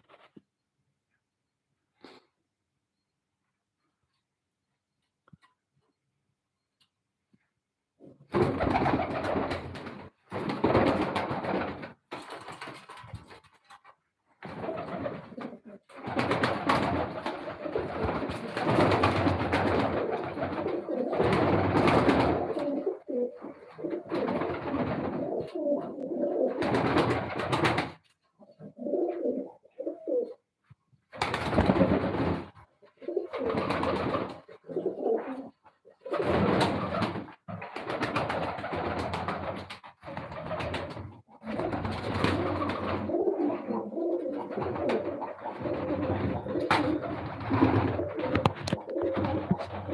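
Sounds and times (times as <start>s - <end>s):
pigeons cooing: 17.0s - 26.7s, 28.4s - 30.4s, 32.8s - 37.1s, 41.3s - 49.9s.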